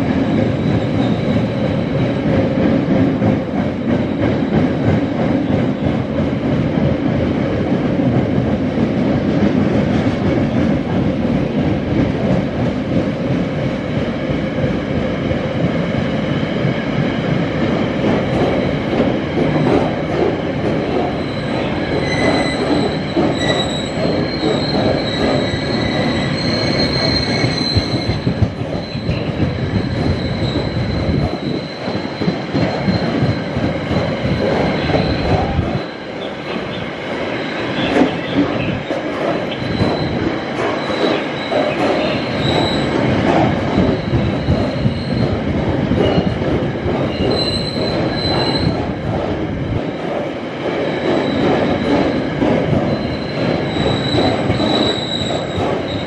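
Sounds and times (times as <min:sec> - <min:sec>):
train wheels rumbling and clattering: 0:00.0 - 0:56.0
high-pitched wheel squeal: 0:21.3 - 0:28.2, 0:53.2 - 0:56.0.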